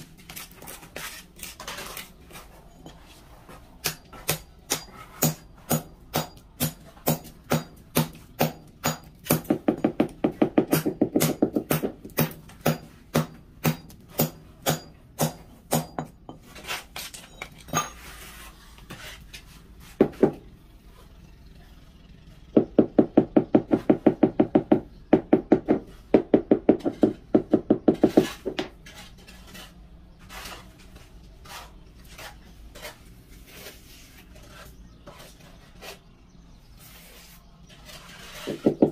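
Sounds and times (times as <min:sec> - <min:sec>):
knocking on ceramic floor tiles: 0:09.5 - 0:12.2, 0:22.6 - 0:28.7, 0:38.5 - 0:38.9.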